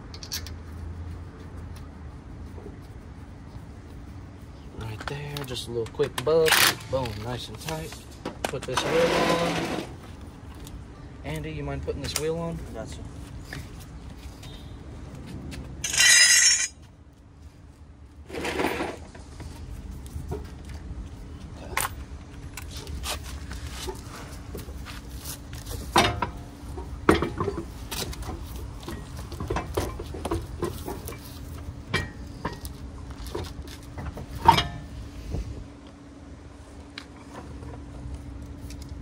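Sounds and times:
metallic clinks and knocks: 0:00.0 - 0:00.6, 0:15.8 - 0:16.7.

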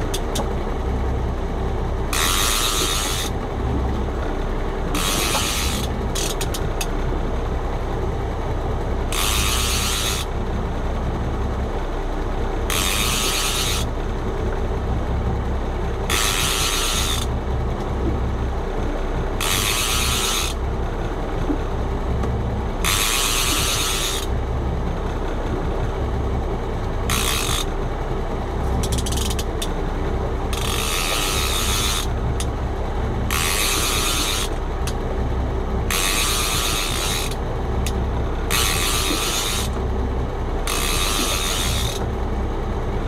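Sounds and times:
steady low rumble: 0:00.0 - 0:43.0
fishing reel cranking: 0:02.1 - 0:03.4, 0:04.9 - 0:06.7, 0:09.1 - 0:10.3, 0:12.7 - 0:13.9, 0:16.1 - 0:17.3, 0:19.4 - 0:20.6, 0:22.8 - 0:24.3, 0:27.1 - 0:27.7, 0:28.8 - 0:29.7, 0:30.5 - 0:32.2, 0:33.3 - 0:35.0, 0:35.9 - 0:39.8, 0:40.6 - 0:42.0.

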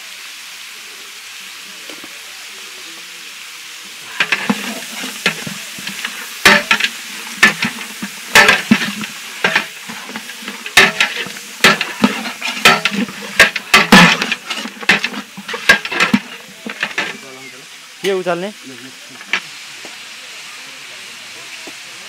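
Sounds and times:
meat sizzling: 0:00.0 - 0:22.0
metal ladle scraping pot: 0:04.0 - 0:17.3.

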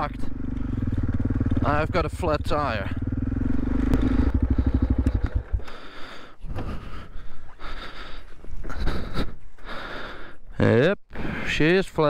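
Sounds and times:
motorcycle engine idling: 0:00.0 - 0:08.2.

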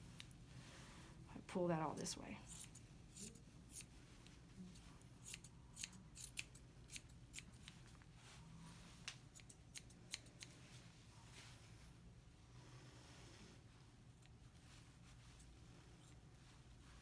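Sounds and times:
grooming scissors snipping hair: 0:02.4 - 0:03.9, 0:05.2 - 0:07.8, 0:09.0 - 0:10.6.

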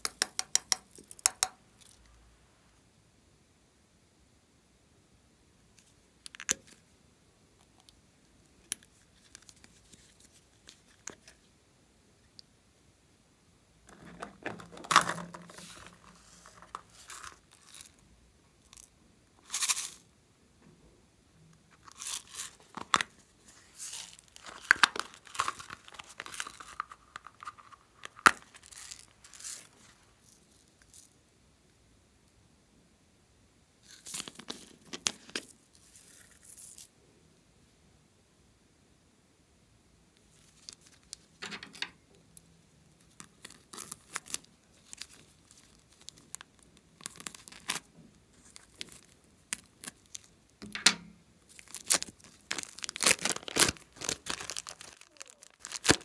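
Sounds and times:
plastic container pried open: 0:13.9 - 0:15.6
rustling and scraping: 0:13.9 - 0:18.0.

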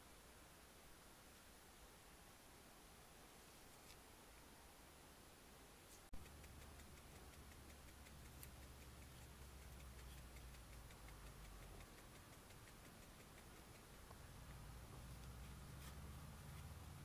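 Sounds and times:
faint hum and hiss: 0:00.0 - 0:17.0
light even ticking: 0:06.1 - 0:17.0.

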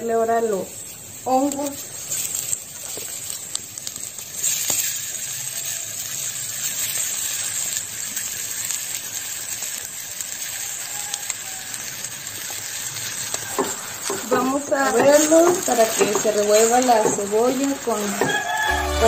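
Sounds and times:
food sizzling in hot oil: 0:00.0 - 0:19.0
wooden spatula scraping clay bowl: 0:13.5 - 0:19.0.

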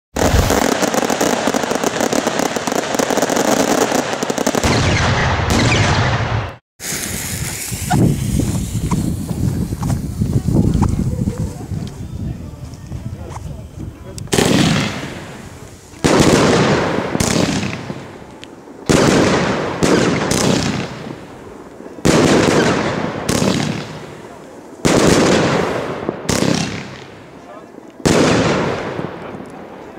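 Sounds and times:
firework bangs and crackles: 0:00.1 - 0:29.9.

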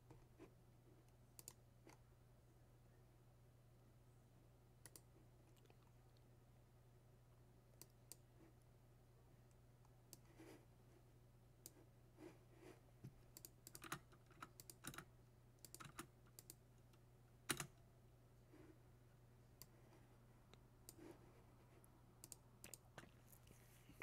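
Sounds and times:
keyboard and mouse clicking: 0:01.4 - 0:02.0, 0:04.8 - 0:05.1, 0:13.3 - 0:16.6, 0:17.5 - 0:17.8, 0:22.2 - 0:22.8.

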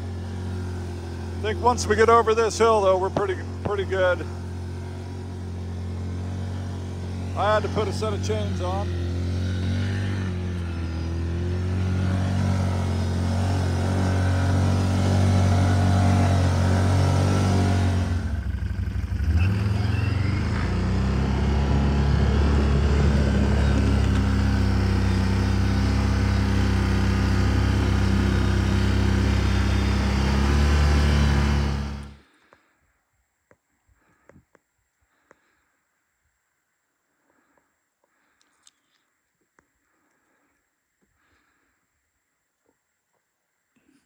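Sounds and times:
atv engine running under load: 0:00.0 - 0:32.4.

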